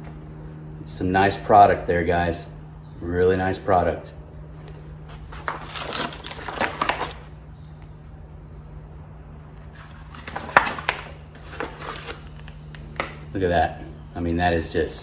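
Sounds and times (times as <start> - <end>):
steady low hum: 0.0 - 15.0
plastic packaging crinkling: 5.3 - 7.3, 9.7 - 13.0.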